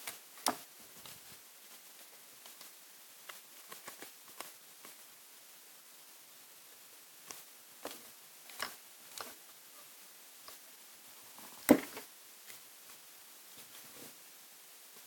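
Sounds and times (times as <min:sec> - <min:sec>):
paper rustling and tapping: 0:11.7 - 0:12.1.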